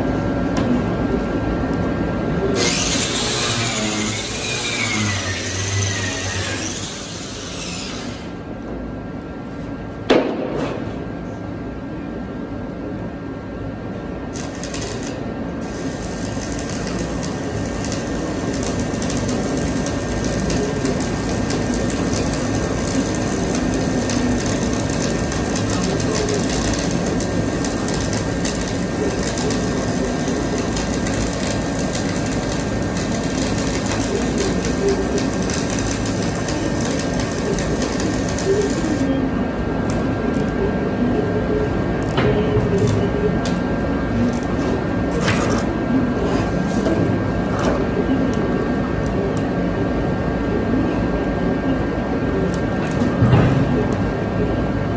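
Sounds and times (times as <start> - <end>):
welding arc crackling: 2.6 - 8.3, 14.3 - 39.1.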